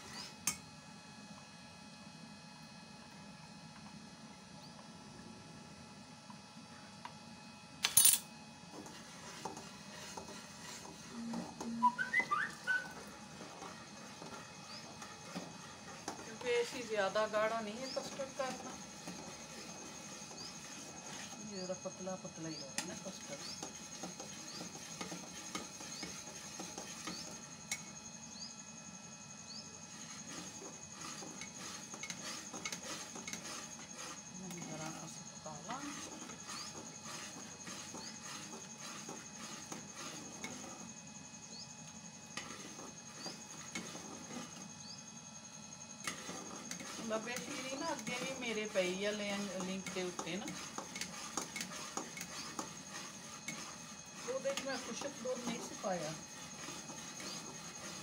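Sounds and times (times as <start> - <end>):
metal spoon scraping a pot: 8.0 - 28.0, 29.8 - 40.9, 42.3 - 44.7, 46.0 - 58.0
spoon scraping and clinking pot: 30.2 - 34.2, 46.0 - 58.0.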